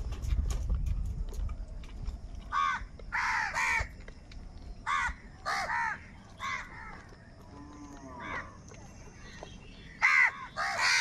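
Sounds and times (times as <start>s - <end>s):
crows cawing: 2.5s - 3.9s, 4.8s - 7.0s, 8.2s - 8.6s, 9.9s - 11.0s.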